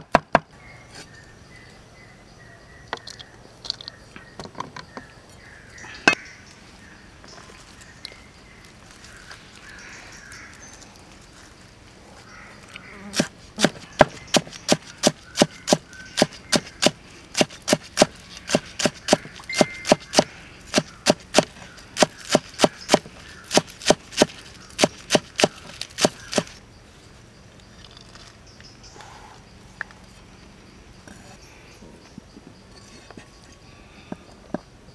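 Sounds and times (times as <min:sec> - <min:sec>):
cleaver chopping on wooden block: 0:13.2 - 0:26.5.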